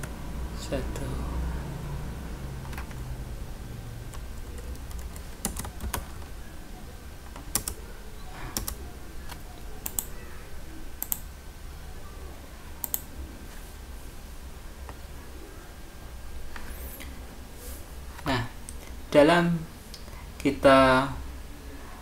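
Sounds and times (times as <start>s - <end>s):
low steady hum: 0.0s - 22.0s
computer keyboard and mouse clicks: 4.1s - 6.3s, 7.2s - 7.8s, 8.5s - 10.2s, 11.0s - 11.3s, 12.8s - 13.1s.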